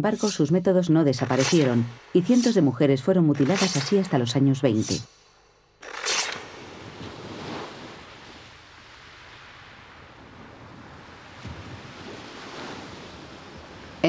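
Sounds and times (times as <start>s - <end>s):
wind: 0.0s - 14.0s
sea waves washing on shore: 5.8s - 14.0s.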